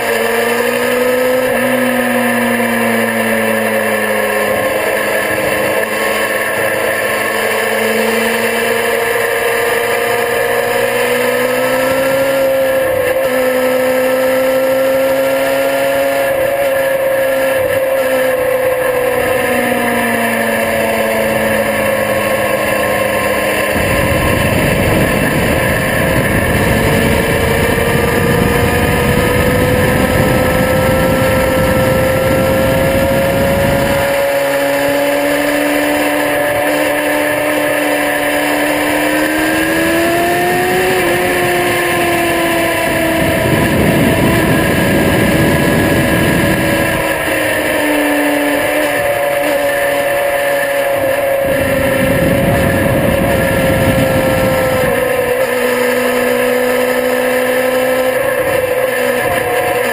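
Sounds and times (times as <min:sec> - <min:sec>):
motorcycle engine running: 0:00.0 - 0:59.9
wind rush: 0:21.2 - 0:35.1, 0:38.7 - 0:49.8, 0:50.7 - 0:59.9
wind buffeting microphone: 0:23.2 - 0:35.0, 0:38.8 - 0:49.5, 0:51.0 - 0:56.1.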